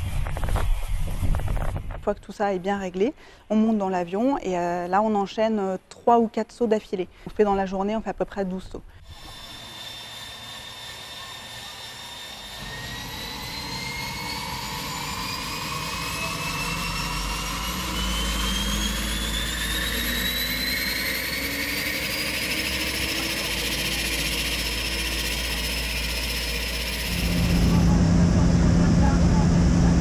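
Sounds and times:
turboprop engine whine rising: 0:09.1 - 0:30.0
low rumble: 0:26.0 - 0:30.0.

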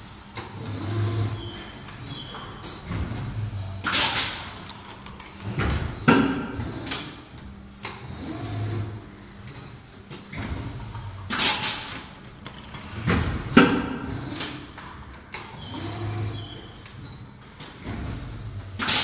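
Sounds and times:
machine low hum: 0:00.0 - 0:12.4.

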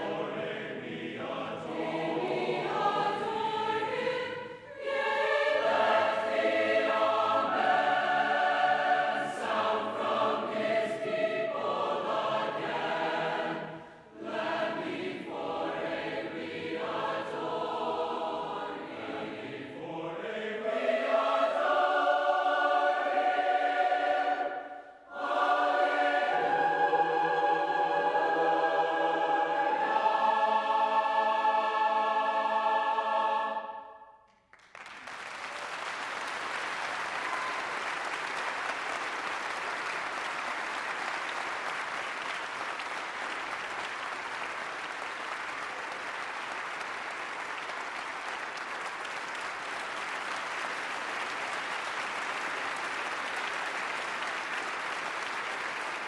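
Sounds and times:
choir singing chords: 0:00.0 - 0:34.2
audience applauding: 0:34.5 - 0:56.0.

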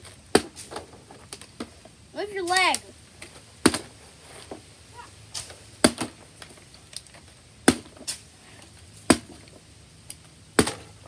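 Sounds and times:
plastic bottle hitting concrete: 0:03.6 - 0:03.9, 0:05.8 - 0:06.5, 0:09.1 - 0:09.5, 0:10.6 - 0:11.0.

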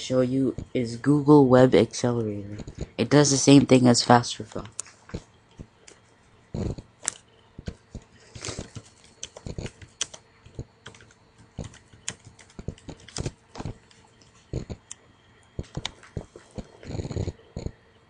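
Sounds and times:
computer keyboard typing: 0:06.6 - 0:15.0, 0:15.6 - 0:17.8.

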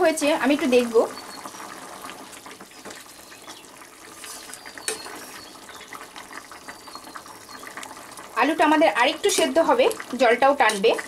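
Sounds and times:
curry bubbling in a pot: 0:00.0 - 0:11.0
spatula stirring: 0:04.0 - 0:05.5.

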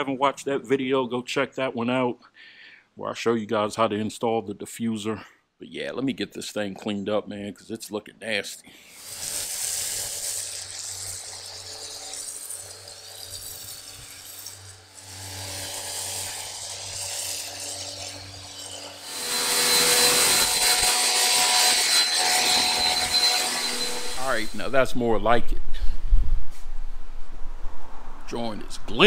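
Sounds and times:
foam spray hissing: 0:08.9 - 0:17.6
water jet hissing: 0:08.9 - 0:18.1
pressure washer motor hum: 0:09.0 - 0:24.7.

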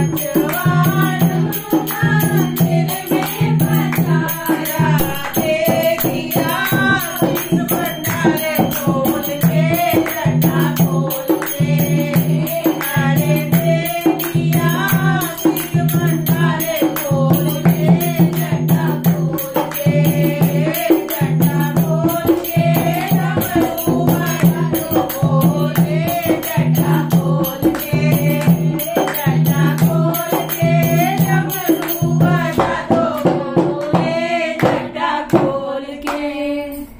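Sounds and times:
fast high beat: 0:00.0 - 0:34.8
dholak drum: 0:00.0 - 0:35.9
devotional singing: 0:00.0 - 0:36.9.

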